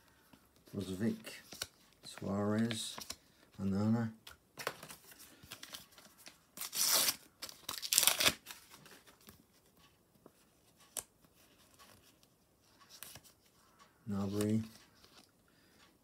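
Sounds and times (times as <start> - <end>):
faint crinkling of stickers: 0.1 - 4.2, 8.4 - 15.9
wrapper ripping: 6.6 - 8.5.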